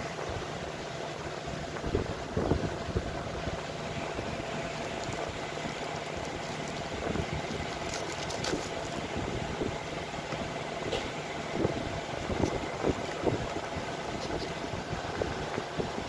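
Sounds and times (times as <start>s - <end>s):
plastic packaging crinkling: 4.0s - 9.3s.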